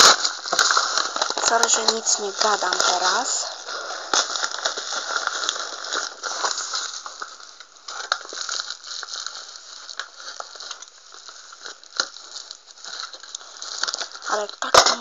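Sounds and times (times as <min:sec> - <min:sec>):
knife cutting plastic: 0:00.0 - 0:07.3
plastic bag crinkling: 0:00.0 - 0:15.0.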